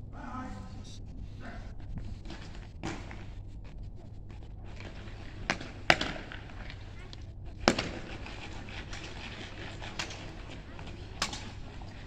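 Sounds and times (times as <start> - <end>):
sharp cracks of parade drill: 4.8 - 12.0.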